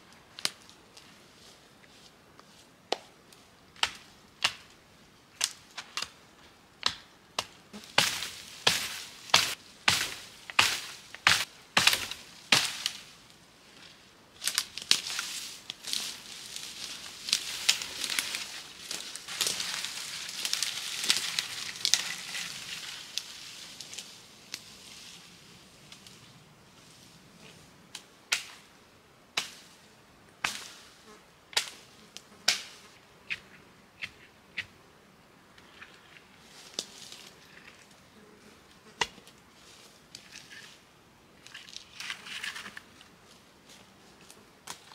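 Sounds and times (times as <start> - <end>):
wooden poles knocking and cracking: 6.8 - 13.0
branches dragged through undergrowth: 7.8 - 27.7, 35.7 - 38.0, 39.2 - 40.8
twigs snapping: 14.4 - 24.7.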